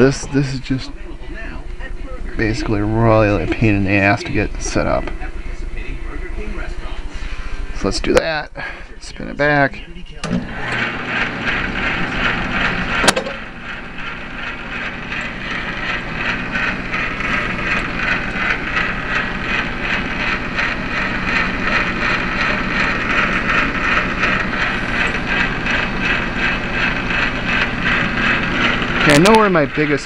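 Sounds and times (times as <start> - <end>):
lathe motor hum and gear noise: 0.0 - 30.0
lathe sharp click: 10.2 - 30.0.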